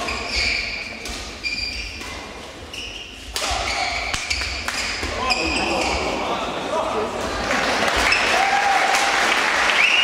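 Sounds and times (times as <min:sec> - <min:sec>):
shoes squeaking on court floor: 0:00.0 - 0:06.3.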